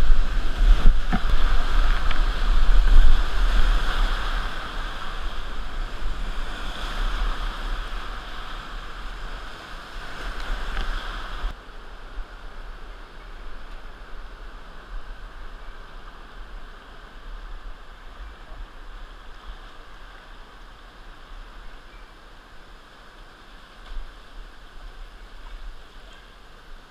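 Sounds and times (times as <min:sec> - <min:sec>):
water buffeting microphone: 0:00.0 - 0:11.6
whitewater rushing: 0:00.0 - 0:11.6
calm river flowing: 0:00.0 - 0:26.9.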